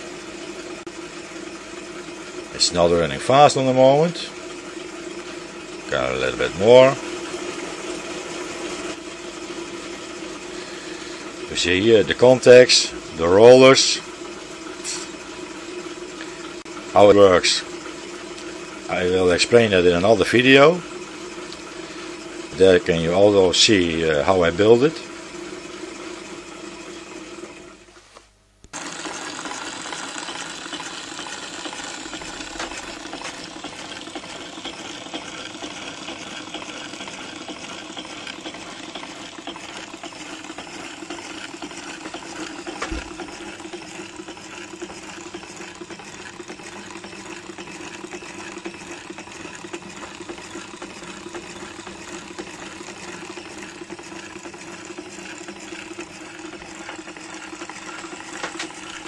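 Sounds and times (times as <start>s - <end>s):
model engine mechanical clatter: 28.7s - 59.0s.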